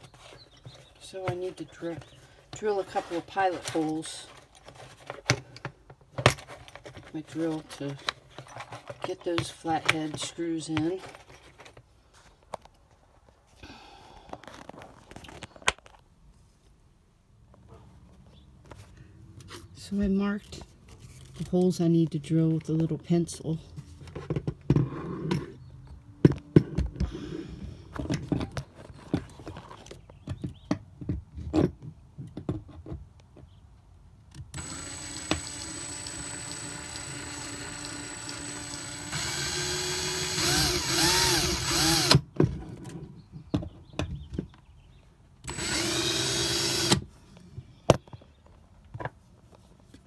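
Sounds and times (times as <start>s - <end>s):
cordless drill drilling into wall: 34.5s - 42.2s, 45.5s - 47.0s.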